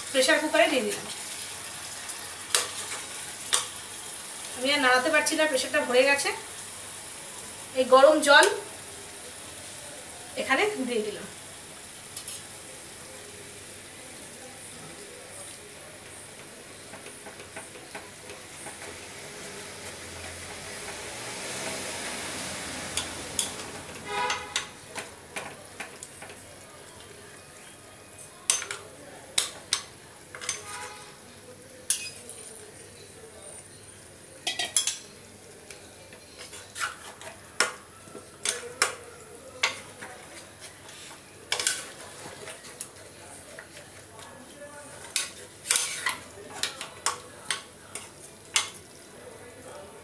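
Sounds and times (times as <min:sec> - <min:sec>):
curry sizzling in a pot: 0:00.0 - 0:50.0
metal spatula clinking against pot: 0:28.3 - 0:28.8, 0:29.4 - 0:30.8, 0:31.9 - 0:32.5, 0:34.4 - 0:35.1, 0:38.4 - 0:40.1, 0:41.5 - 0:42.0, 0:45.1 - 0:48.9.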